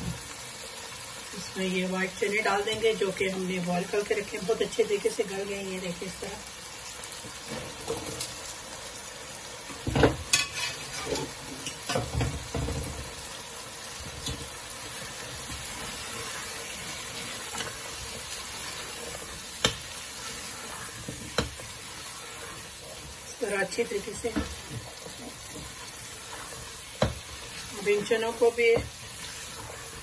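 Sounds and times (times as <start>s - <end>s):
food sizzling in a pot: 0.0s - 30.0s
metal spoon scraping a pot: 10.3s - 12.0s, 14.2s - 23.3s, 24.1s - 30.0s.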